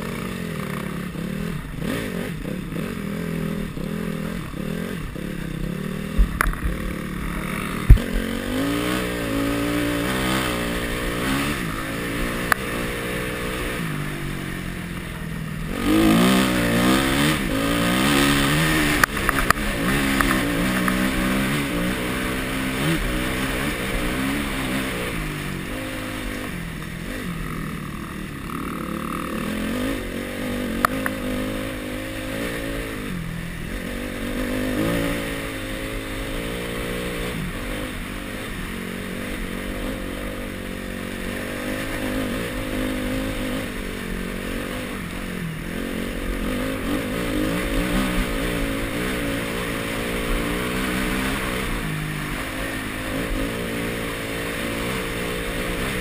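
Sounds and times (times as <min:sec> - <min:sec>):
dirt bike engine revving: 0:00.0 - 0:56.0
sharp click: 0:06.2 - 0:06.8.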